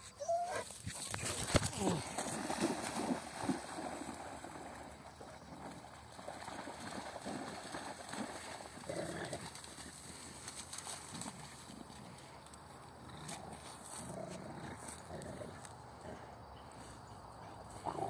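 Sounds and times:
dogs moving in wet grass: 0:00.3 - 0:15.8.

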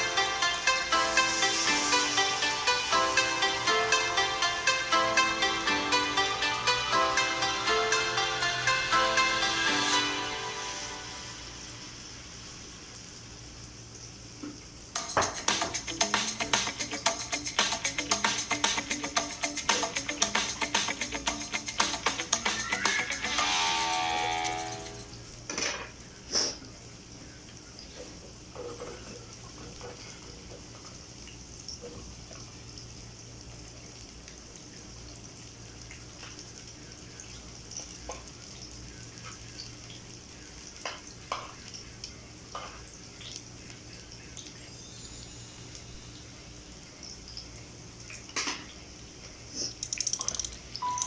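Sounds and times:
omelette sizzling in a pan: 0:00.0 - 0:04.9, 0:09.4 - 0:19.6, 0:20.5 - 0:50.8
music: 0:00.0 - 0:11.9, 0:15.0 - 0:25.2.

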